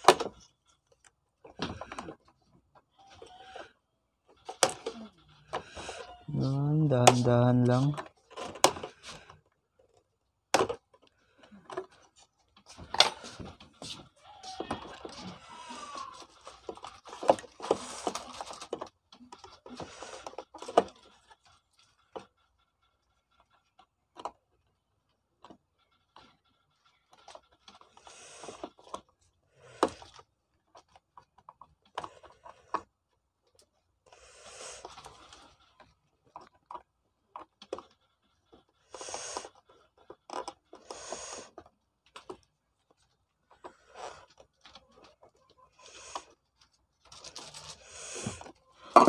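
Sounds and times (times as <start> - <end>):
hands rustling plastic housing: 10.6 - 22.4.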